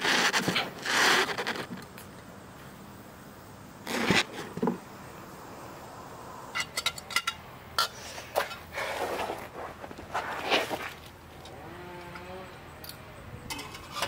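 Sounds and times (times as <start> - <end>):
rustle: 0.0 - 14.0
metal scrape: 6.6 - 11.0, 13.5 - 14.0.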